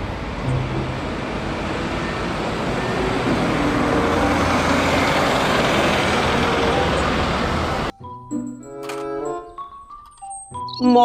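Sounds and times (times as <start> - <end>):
bus driving past: 0.0 - 7.9.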